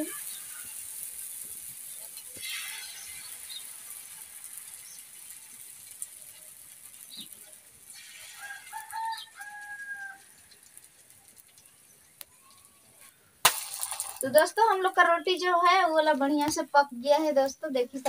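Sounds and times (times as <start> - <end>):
faint steady hiss: 0.0 - 18.0
rooster crowing: 8.2 - 10.4.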